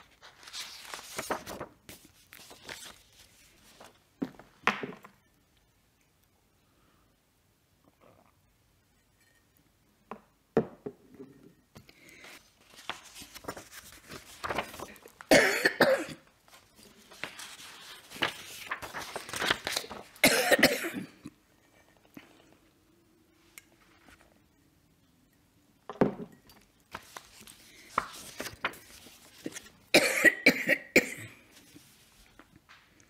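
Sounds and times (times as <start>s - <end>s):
elderly woman coughing: 15.3s - 16.2s, 20.2s - 21.3s, 29.9s - 31.5s.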